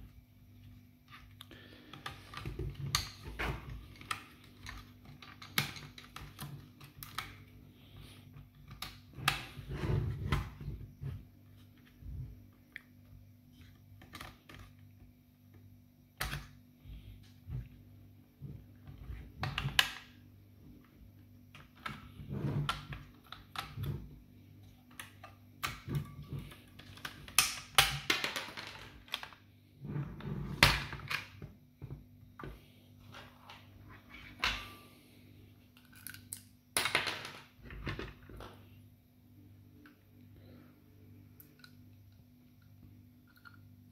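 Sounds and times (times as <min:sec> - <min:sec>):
plastic parts clicking and knocking: 0:01.2 - 0:07.5, 0:13.9 - 0:15.1, 0:21.5 - 0:29.5.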